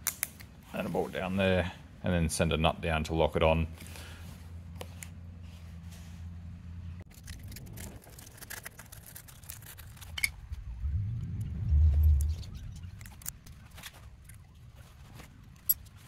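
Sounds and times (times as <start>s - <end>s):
low steady hum: 0.1s - 16.0s
low rumble: 9.7s - 13.7s.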